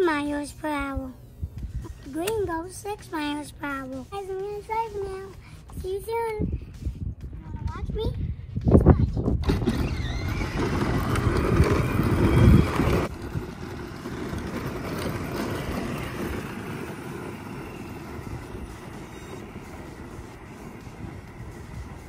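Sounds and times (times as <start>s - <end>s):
electric toy vehicle whirring: 9.4s - 22.0s.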